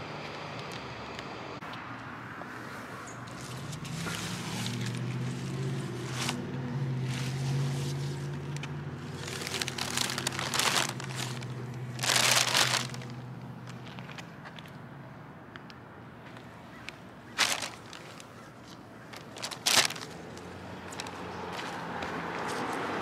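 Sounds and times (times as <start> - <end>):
low engine hum: 0.0 - 23.0
plastic bag crinkling: 7.1 - 14.2, 17.3 - 18.3, 19.1 - 21.1.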